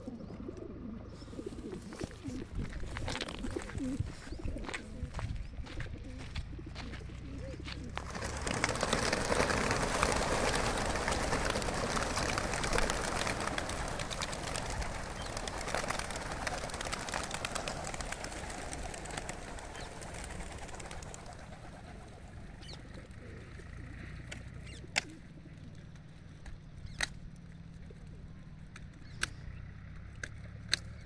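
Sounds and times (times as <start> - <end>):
flock of pigeons wingbeats: 0.0 - 26.1.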